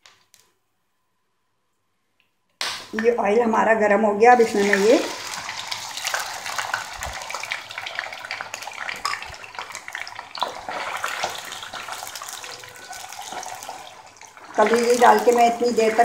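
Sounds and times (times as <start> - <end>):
liver sizzling in hot oil: 4.4 - 16.0
spatula stirring: 4.5 - 16.0.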